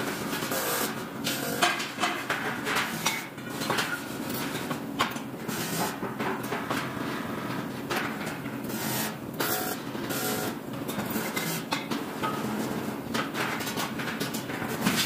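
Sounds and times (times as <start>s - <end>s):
factory hum: 0.0s - 15.0s.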